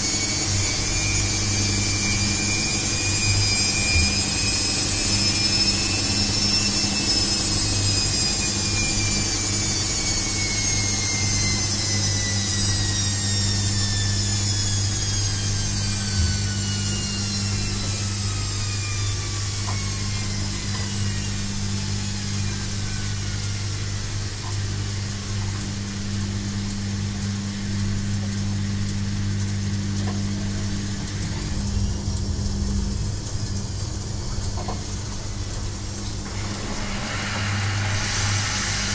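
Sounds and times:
washing machine motor whine: 0:00.0 - 0:38.9
steady low hum: 0:09.0 - 0:36.5.

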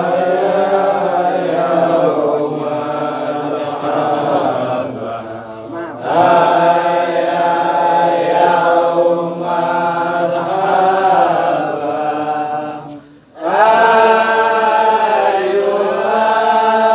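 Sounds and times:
voices chanting: 0:00.0 - 0:16.9.

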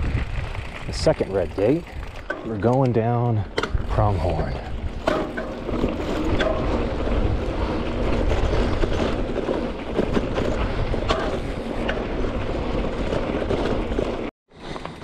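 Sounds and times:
bike clicks and rattles: 0:00.0 - 0:15.0
bike tyres rumbling on dirt: 0:00.0 - 0:15.0.

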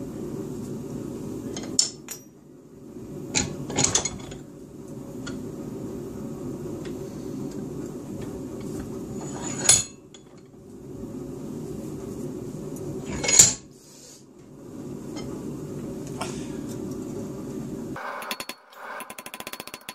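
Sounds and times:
steel tools clinking: 0:18.2 - 0:19.9.

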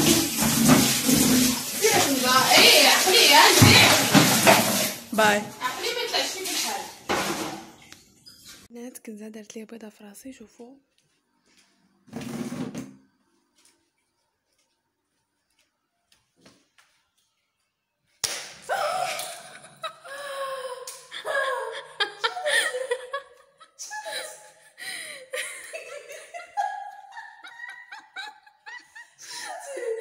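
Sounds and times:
sharp smack: 0:18.2 - 0:18.7
women laughing and shrieking: 0:18.7 - 0:30.0.

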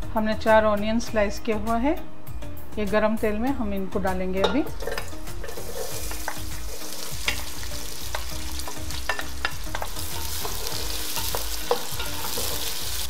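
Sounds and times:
onions sizzling in hot oil: 0:04.8 - 0:13.0.

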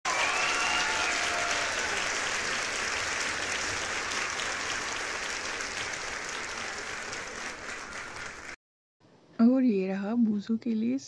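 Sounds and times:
applause: 0:00.0 - 0:08.6.

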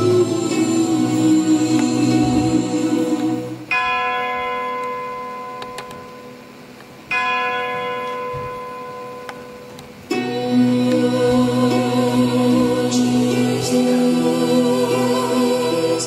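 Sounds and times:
music: 0:00.0 - 0:06.6, 0:08.3 - 0:16.0
bell ringing: 0:03.7 - 0:10.7.

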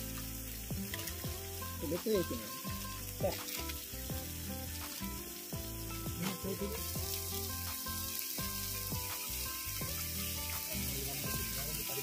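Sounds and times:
fish frying in oil: 0:00.0 - 0:12.0.

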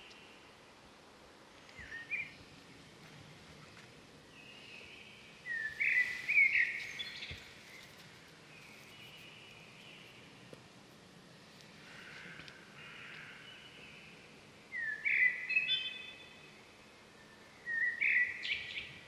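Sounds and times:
steady background hiss: 0:00.0 - 0:19.0
bird calls: 0:04.4 - 0:08.0, 0:11.9 - 0:16.4, 0:17.2 - 0:19.0.

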